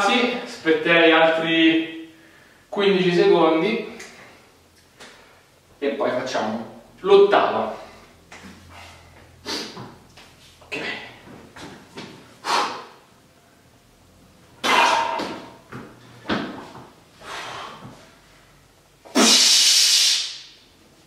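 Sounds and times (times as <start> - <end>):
man breathing hard: 7.8 - 9.8, 17.2 - 18.0
breath hissing through teeth: 12.4 - 13.0, 19.2 - 20.4.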